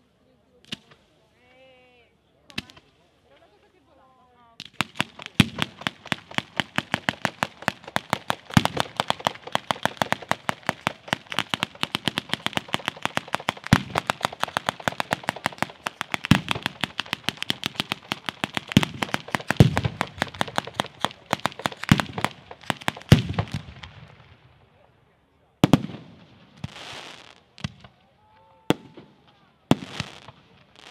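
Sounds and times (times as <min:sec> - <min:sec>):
firecracker cracks: 0:04.6 - 0:23.9
deep firework bangs: 0:04.8 - 0:24.3.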